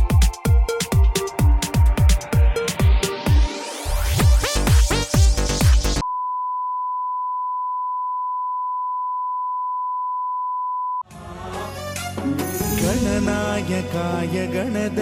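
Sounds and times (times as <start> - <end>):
electronic music: 0.0 - 6.0.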